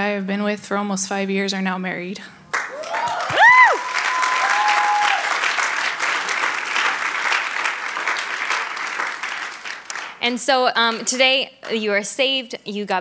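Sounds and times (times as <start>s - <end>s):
congregation applauding: 2.5s - 10.2s
high whoop: 2.7s - 5.5s.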